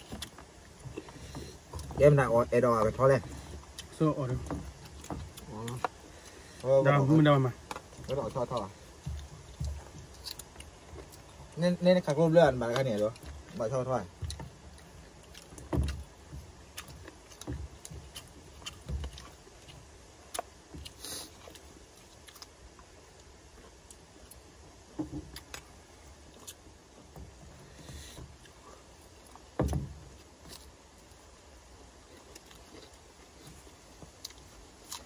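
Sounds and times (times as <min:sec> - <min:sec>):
low bumps: 0:00.0 - 0:20.9.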